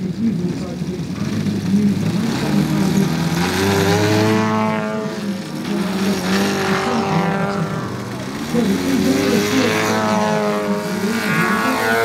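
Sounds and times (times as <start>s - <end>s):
model aeroplane engines: 0.0s - 12.0s.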